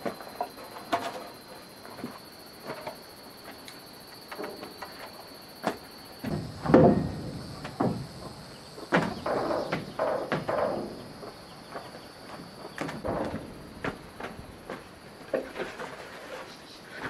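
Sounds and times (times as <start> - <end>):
knocks and bumps: 4.3 - 16.4
scraping: 6.2 - 17.0.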